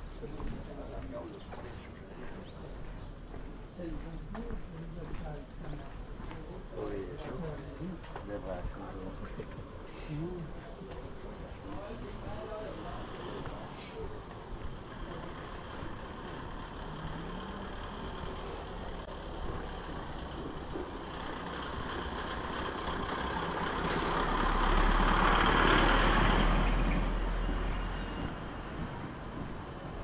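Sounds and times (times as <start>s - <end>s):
street noise: 0.0s - 30.0s
vehicle driving past: 15.0s - 30.0s.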